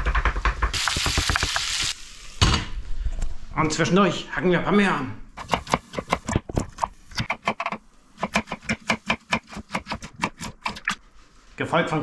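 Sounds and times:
knife chopping on wooden board: 5.4s - 10.8s.

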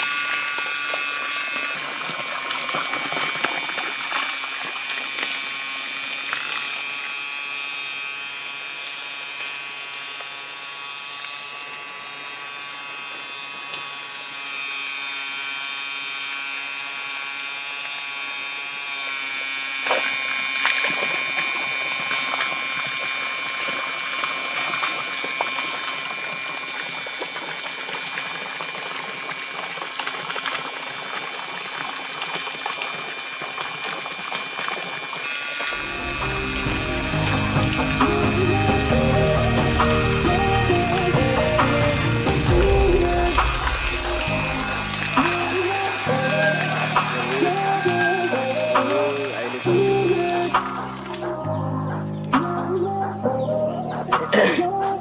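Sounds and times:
water gushing and splashing: 0.0s - 7.0s, 19.8s - 51.4s
water pump whining: 0.0s - 55.0s.

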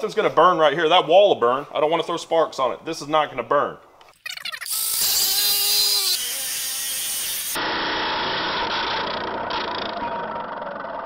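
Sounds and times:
angle grinder cutting metal: 4.7s - 9.1s.

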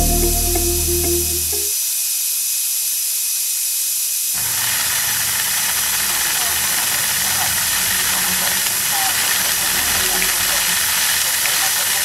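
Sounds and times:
steady hiss: 1.7s - 12.0s
rice poured into hopper: 4.4s - 12.0s.

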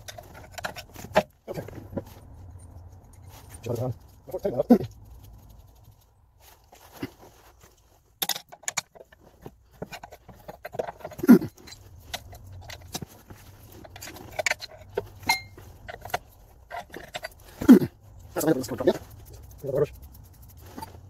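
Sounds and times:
metal ringing: 15.2s - 16.1s.

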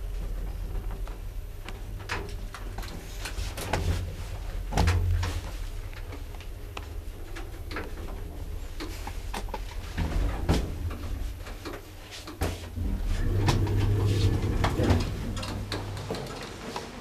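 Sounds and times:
low rumble: 12.8s - 16.1s.

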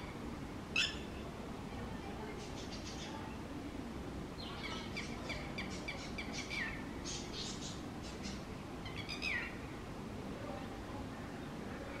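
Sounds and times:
lapwing calling: 0.0s - 1.2s, 4.4s - 9.7s.

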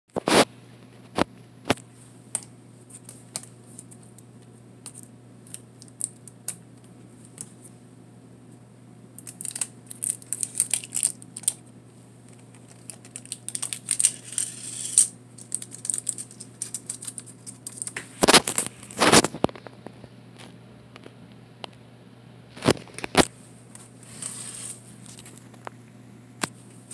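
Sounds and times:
tape crinkling: 9.2s - 11.6s, 12.2s - 19.8s.

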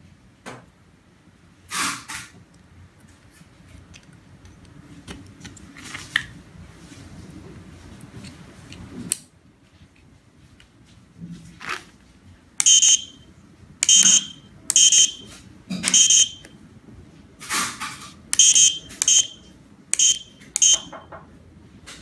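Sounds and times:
buzzer beeping: 12.6s - 13.2s, 13.8s - 15.3s, 15.9s - 16.5s, 18.4s - 21.1s.

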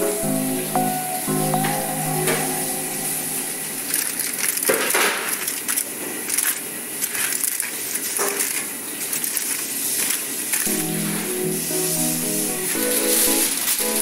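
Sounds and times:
aluminium foil crinkling: 3.9s - 10.7s.

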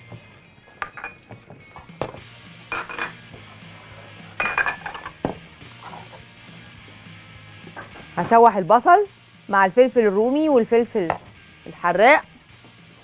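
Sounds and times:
pans and utensils clinking: 0.7s - 1.4s, 2.0s - 3.3s, 4.4s - 6.2s.

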